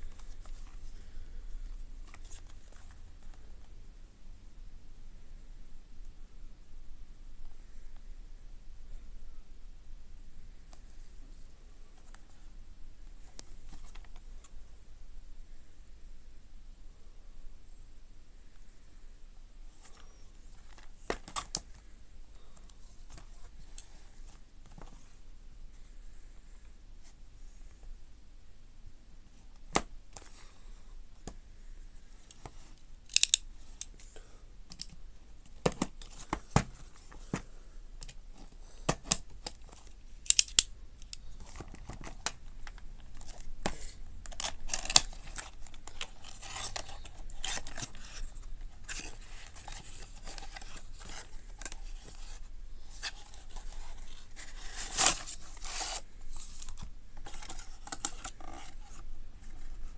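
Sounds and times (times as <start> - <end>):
cardboard rustling and tearing: 44.2 - 59.0.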